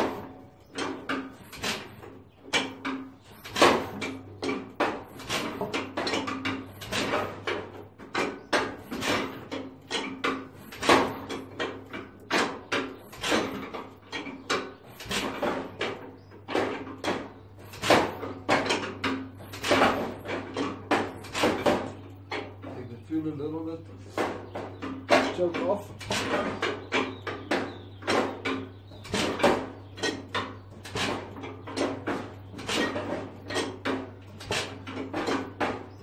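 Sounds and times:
tractor engine running unevenly: 0:00.0 - 0:36.0.

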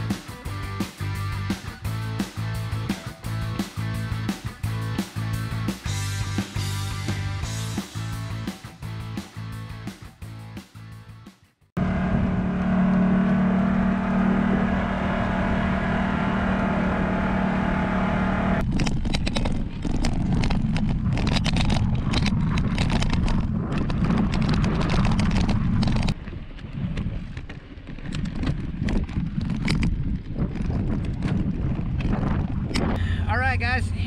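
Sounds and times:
utv engine running: 0:00.0 - 0:09.1, 0:11.8 - 0:34.0
wind rushing over microphone: 0:14.2 - 0:34.0
bike rolling down dirt road: 0:18.6 - 0:33.0.

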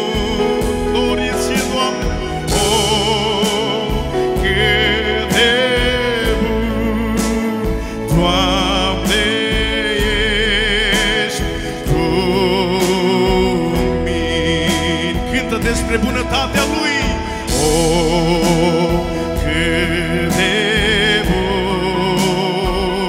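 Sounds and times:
electronic keyboard chords: 0:00.0 - 0:23.0
man singing worship song: 0:00.0 - 0:23.0
steady bass: 0:00.0 - 0:23.0.

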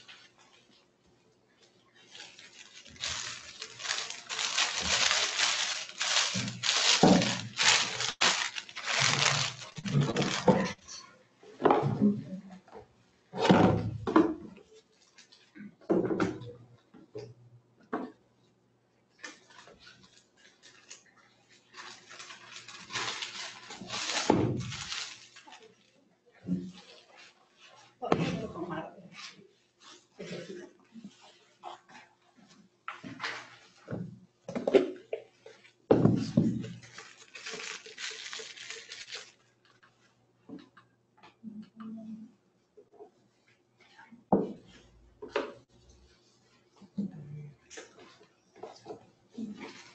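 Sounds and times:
rustling and clatter at table: 0:00.0 - 0:18.3, 0:19.2 - 0:41.4, 0:42.8 - 0:49.9
plastic packaging tearing: 0:02.1 - 0:10.8, 0:21.7 - 0:25.7, 0:36.4 - 0:39.4.

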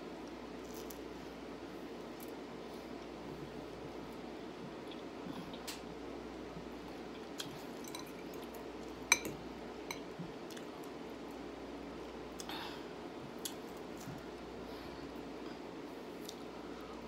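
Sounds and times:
steady low hum: 0:00.0 - 0:17.0
metal fork clinking glass bowl: 0:07.8 - 0:08.2, 0:09.1 - 0:09.3.

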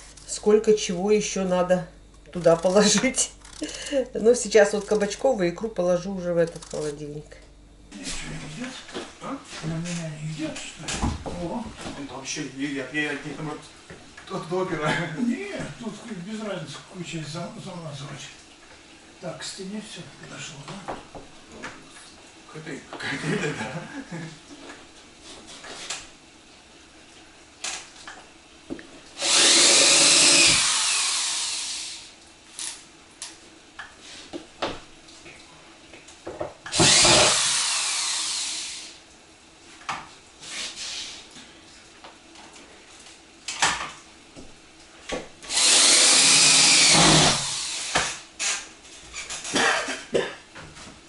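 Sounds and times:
power drill driving screws: 0:29.2 - 0:32.8, 0:36.7 - 0:39.0, 0:45.5 - 0:48.6.

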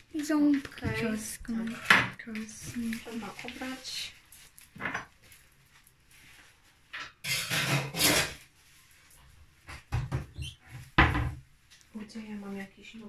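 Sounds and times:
rustling rubbing scrape: 0:01.0 - 0:09.5.

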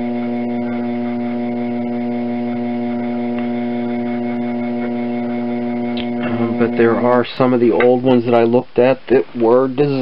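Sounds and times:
potter's wheel motor hum: 0:00.0 - 0:08.9.

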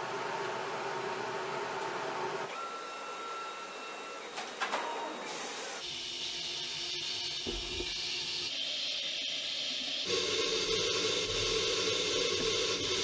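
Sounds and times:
machinery humming: 0:09.5 - 0:13.0.

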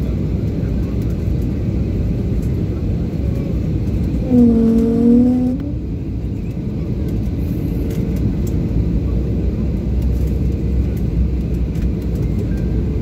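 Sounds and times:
airliner cabin rumble: 0:00.0 - 0:13.0
humming tone: 0:04.2 - 0:05.8.

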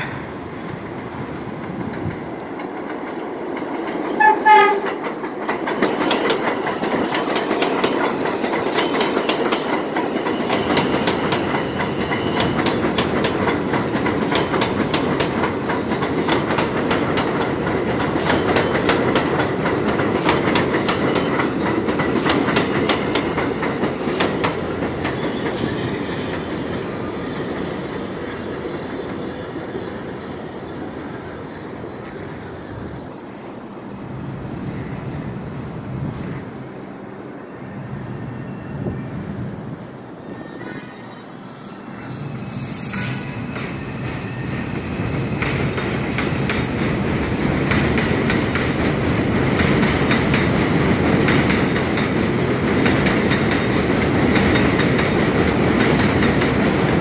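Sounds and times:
train rumble: 0:00.0 - 0:38.2, 0:40.6 - 0:57.0
wheels clacking over rail joints: 0:01.8 - 0:26.8, 0:45.3 - 0:57.0
train horn blast: 0:04.2 - 0:05.0.

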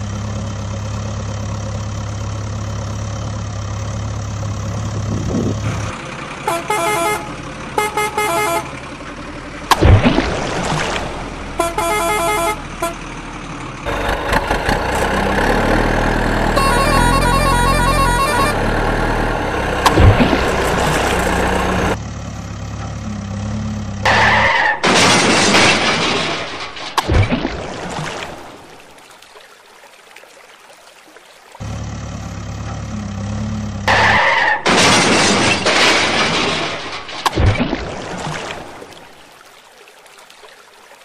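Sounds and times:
low rumbling: 0:02.2 - 0:06.5, 0:12.7 - 0:24.5
truck horn honking: 0:06.4 - 0:08.9, 0:11.5 - 0:13.1, 0:16.2 - 0:22.0
water splashing: 0:09.6 - 0:12.6, 0:19.3 - 0:22.0, 0:24.1 - 0:32.7, 0:33.9 - 0:41.0.

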